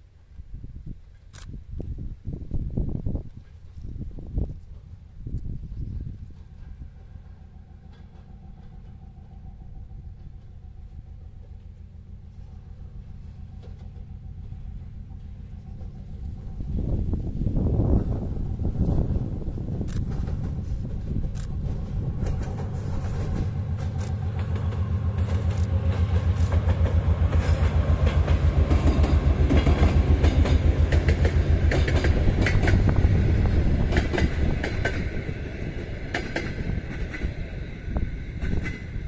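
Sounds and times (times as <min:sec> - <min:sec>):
diesel locomotive engine pulsing: 0:04.0 - 0:39.0
train wheels clicking over rail joints: 0:06.2 - 0:17.5, 0:18.8 - 0:39.0.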